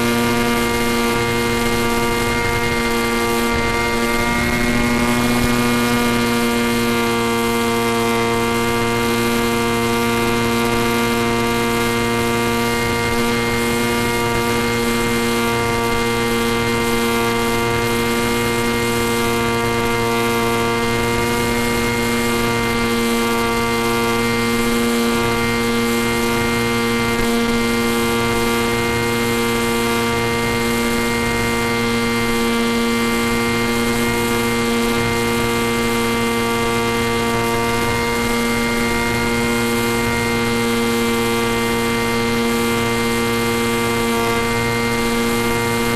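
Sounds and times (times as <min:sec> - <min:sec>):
rushing air: 0:00.0 - 0:09.6
electric motor and propeller droning: 0:00.0 - 0:45.9.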